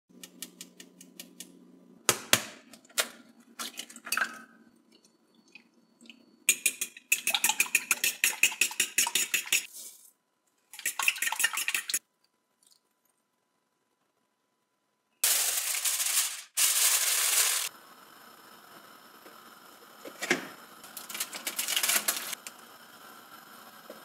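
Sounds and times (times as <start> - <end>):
spoon tapping in ceramic ramekin: 6.5 - 9.7.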